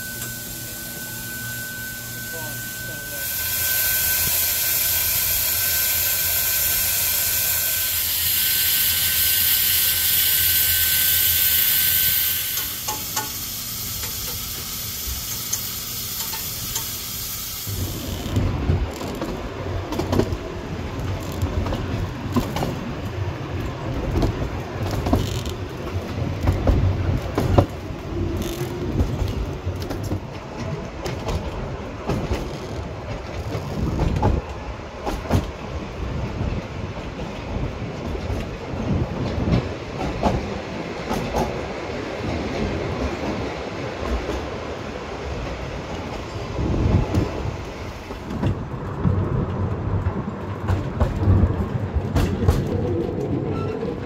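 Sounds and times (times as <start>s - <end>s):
steam hissing: 0.0s - 18.5s
steam train rumbling: 0.0s - 54.0s.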